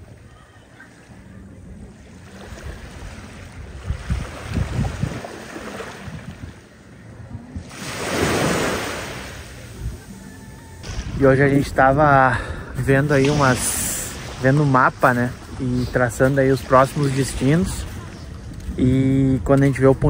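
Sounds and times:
wind buffeting microphone: 0:00.0 - 0:08.6, 0:09.5 - 0:20.0
sea waves washing onto shore: 0:07.6 - 0:18.5.

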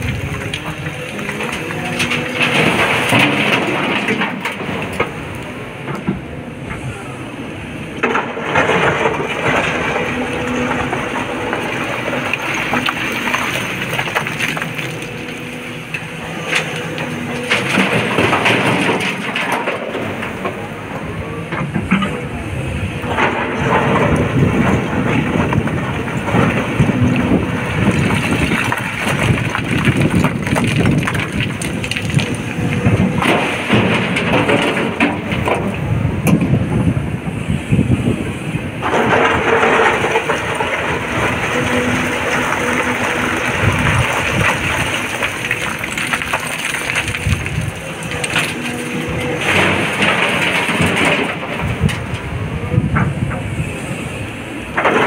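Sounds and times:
excavator diesel engine running: 0:00.0 - 0:55.0
rocks clattering into truck bed: 0:08.0 - 0:15.1, 0:16.6 - 0:20.5, 0:23.1 - 0:36.5, 0:38.8 - 0:52.2.

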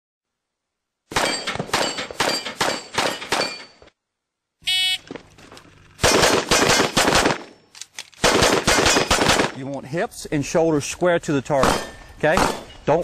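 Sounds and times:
pistol shots: 0:01.1 - 0:03.7, 0:06.0 - 0:07.6, 0:08.2 - 0:09.6, 0:11.6 - 0:12.8.

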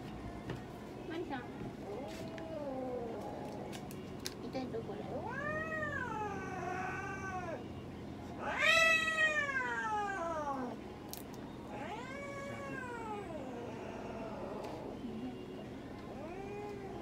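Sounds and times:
cat yowling: 0:05.2 - 0:07.6, 0:08.4 - 0:10.8, 0:11.7 - 0:14.9.

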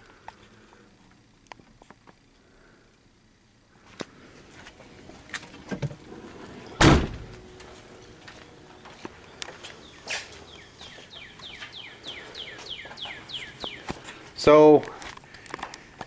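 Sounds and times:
car door shutting: 0:06.7 - 0:07.4.

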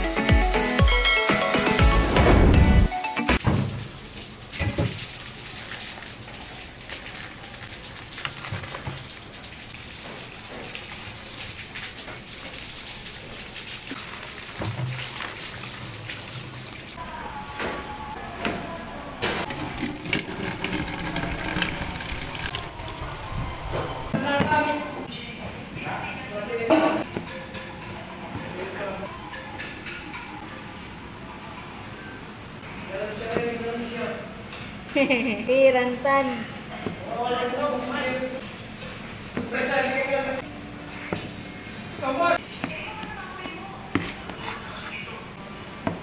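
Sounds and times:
tap water running into steel bowl: 0:03.4 - 0:16.9, 0:19.5 - 0:22.7.

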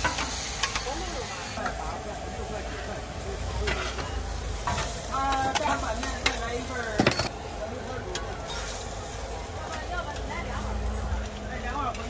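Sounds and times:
pancake sizzling on a griddle: 0:00.0 - 0:12.0
metal spatula scraping and tapping: 0:03.7 - 0:06.4.

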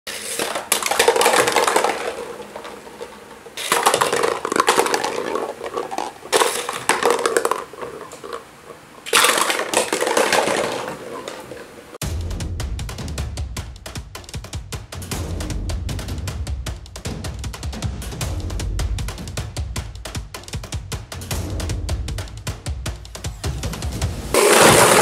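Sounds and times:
plastic pails clattering onto wooden floor: 0:00.1 - 0:08.3, 0:09.1 - 0:11.7, 0:24.4 - 0:25.0
toy car crashing: 0:00.1 - 0:11.7, 0:24.3 - 0:25.0.

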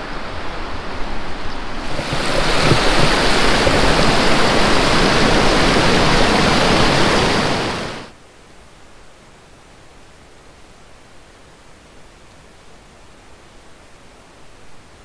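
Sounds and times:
rushing white water: 0:00.0 - 0:08.2.

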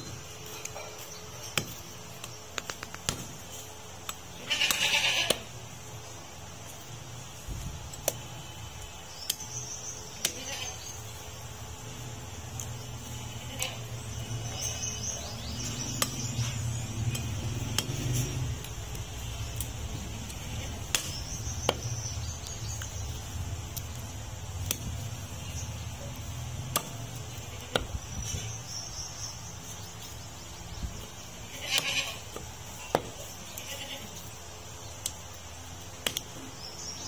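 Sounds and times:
steady low hum: 0:00.0 - 0:37.0
cleaver chopping meat and bone: 0:14.9 - 0:23.2, 0:26.0 - 0:28.4, 0:31.8 - 0:33.4.

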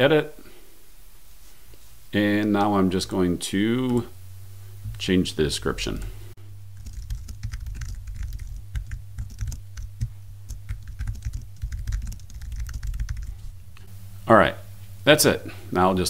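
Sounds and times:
low steady hum: 0:00.0 - 0:16.0
keyboard typing: 0:06.8 - 0:13.4.

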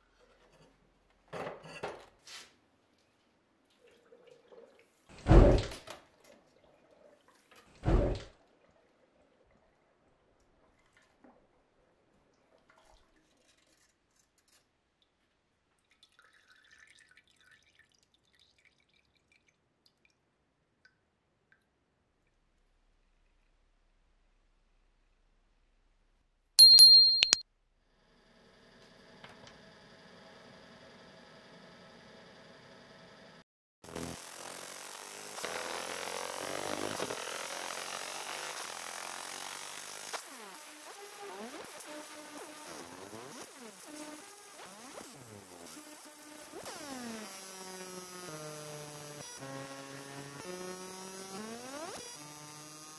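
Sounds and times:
oil dripping into metal pail: 0:15.8 - 0:20.2
laser engraver buzzing hiss: 0:45.8 - 0:52.9.

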